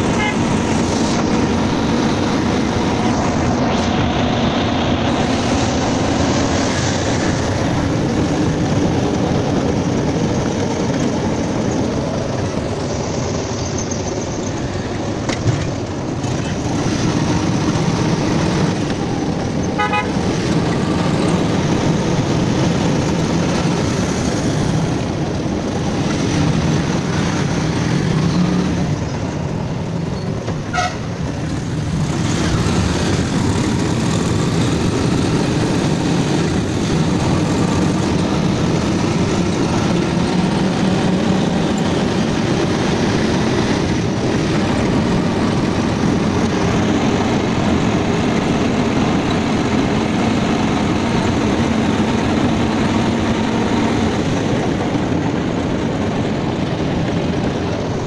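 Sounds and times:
engine and road noise: 0:00.0 - 0:58.0
vehicle horns tooting: 0:00.1 - 0:00.7, 0:19.7 - 0:20.3, 0:30.6 - 0:31.2.

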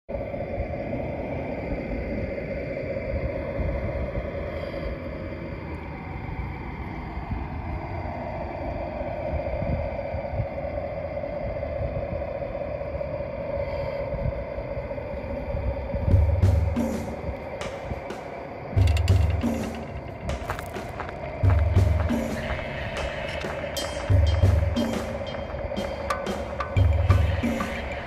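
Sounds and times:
low rumble: 0:14.2 - 0:28.0.

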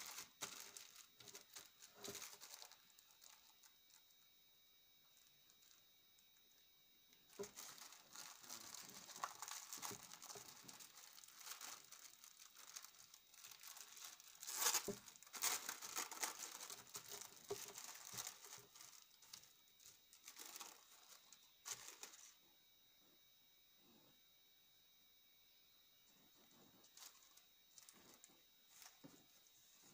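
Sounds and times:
plastic bag ripping: 0:00.0 - 0:03.5, 0:07.3 - 0:19.4
plastic bag crinkling: 0:00.0 - 0:04.1, 0:07.3 - 0:22.4, 0:26.8 - 0:29.0.

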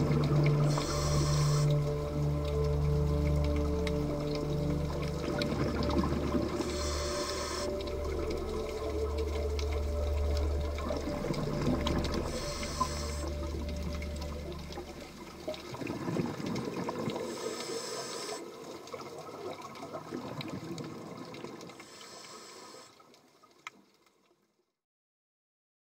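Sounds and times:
gurgling air bubbles: 0:00.0 - 0:18.3
regulator breathing hiss: 0:00.5 - 0:02.0, 0:06.6 - 0:07.8, 0:12.2 - 0:13.5, 0:17.2 - 0:18.5, 0:21.8 - 0:23.0.

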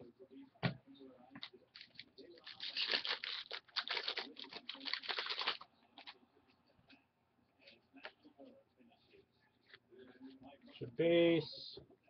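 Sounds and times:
wrapper tearing and crinkling: 0:01.8 - 0:06.1.

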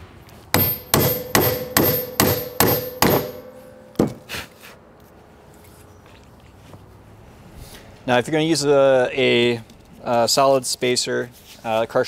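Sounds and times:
hammer striking metal: 0:00.6 - 0:04.4.

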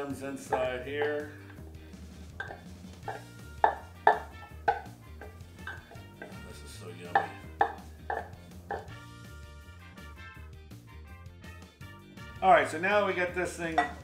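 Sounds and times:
sharp knocks: 0:02.4 - 0:09.0.

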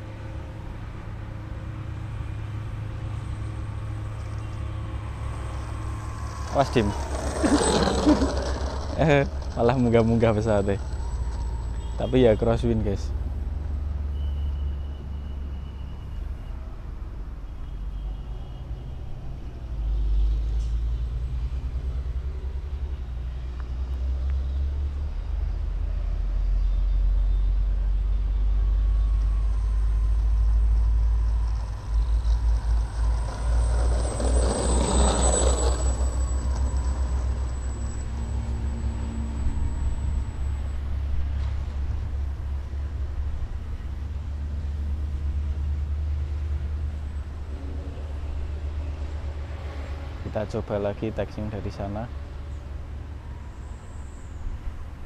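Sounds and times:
model airplane propeller whine: 0:04.0 - 0:12.0, 0:29.2 - 0:41.2.

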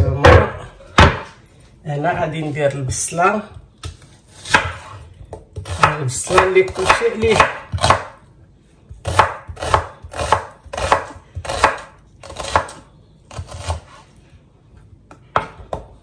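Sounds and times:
knife slicing onion on board: 0:03.8 - 0:08.2, 0:08.9 - 0:14.1.

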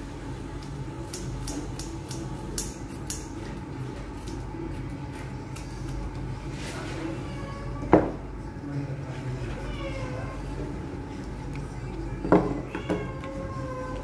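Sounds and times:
steady low hum: 0:00.0 - 0:14.0
scissors snipping fur: 0:00.6 - 0:03.4, 0:04.2 - 0:06.2.

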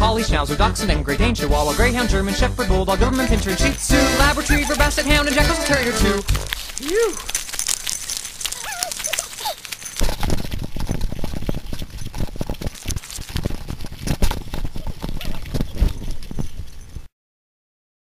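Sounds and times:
footsteps crunching on gravel: 0:02.9 - 0:17.0
dog paws scuffling on gravel: 0:02.9 - 0:17.1.

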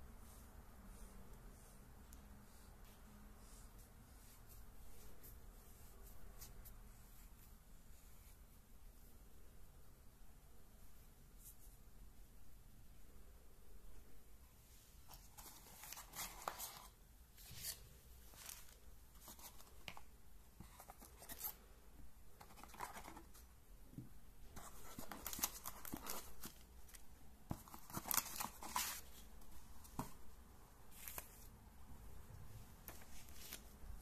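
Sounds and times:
cardboard and paper rustling: 0:15.1 - 0:21.6, 0:22.4 - 0:23.5, 0:24.5 - 0:30.3, 0:32.8 - 0:34.0.

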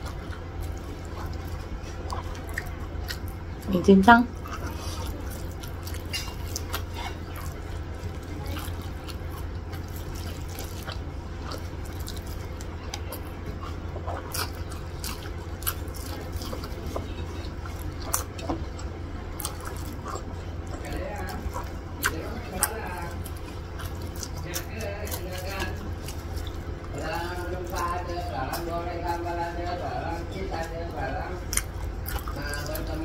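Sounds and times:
chewing and mouth clicks: 0:00.0 - 0:33.0
low hum: 0:00.0 - 0:33.0.

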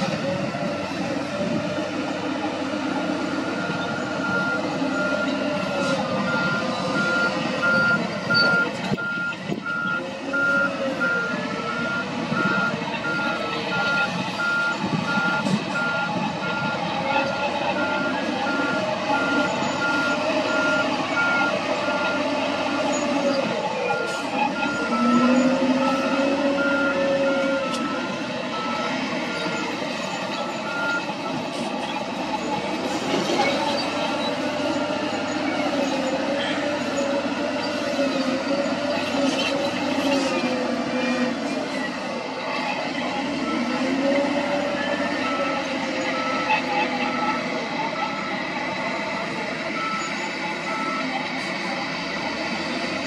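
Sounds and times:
diesel engine working: 0:00.0 - 0:53.0
reversing alarm beeping: 0:03.4 - 0:23.0, 0:23.9 - 0:31.5, 0:43.4 - 0:51.2.

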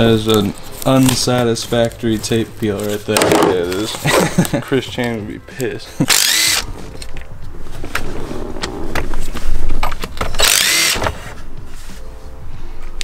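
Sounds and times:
cordless drill whirring: 0:06.1 - 0:06.6, 0:10.4 - 0:11.0.

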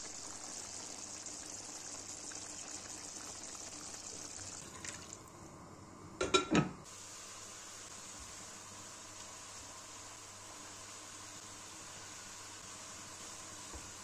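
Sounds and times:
liquid pouring into pan: 0:00.6 - 0:05.3
glass lid clinking on pan: 0:06.2 - 0:06.7.

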